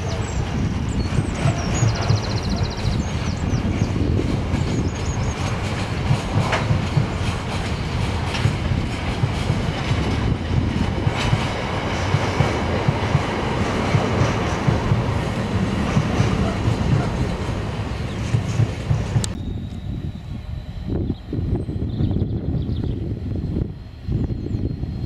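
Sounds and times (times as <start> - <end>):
train wheels clattering over rail joints: 0.0 - 19.4
freight train rumbling past: 0.0 - 25.0.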